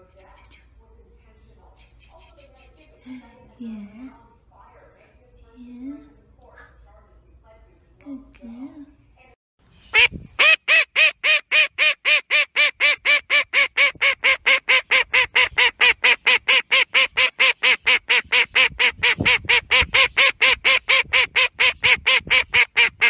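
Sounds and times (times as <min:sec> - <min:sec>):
duck quacking rapidly: 0:09.9 - 0:23.0.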